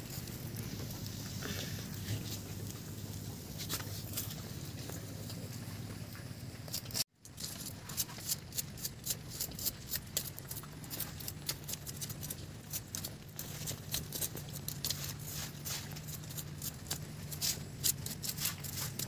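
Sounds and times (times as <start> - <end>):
wood fire crackling: 0.0 - 19.0
bamboo strip scraping: 3.4 - 4.6, 6.7 - 19.0.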